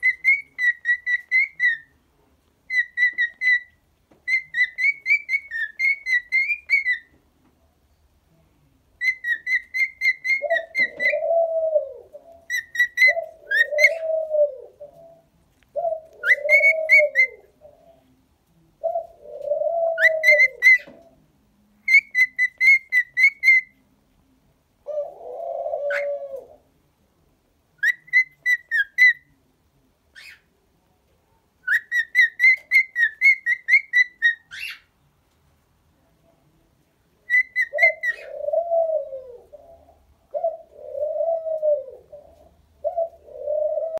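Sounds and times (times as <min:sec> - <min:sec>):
cockatiel whistling: 0:00.0 - 0:01.8, 0:02.7 - 0:03.7, 0:04.3 - 0:07.0, 0:31.6 - 0:34.8, 0:37.3 - 0:38.3
cockatiel cooing calls: 0:00.0 - 0:01.9, 0:02.7 - 0:03.7, 0:04.3 - 0:07.1, 0:09.0 - 0:15.2, 0:15.8 - 0:17.8, 0:18.8 - 0:21.0, 0:24.9 - 0:26.6, 0:27.8 - 0:29.2, 0:31.6 - 0:34.9, 0:37.3 - 0:43.9.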